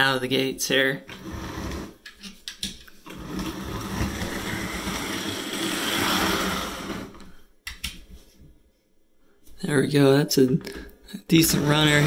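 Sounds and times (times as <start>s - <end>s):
wheels rolling on rails: 3.1s - 7.2s.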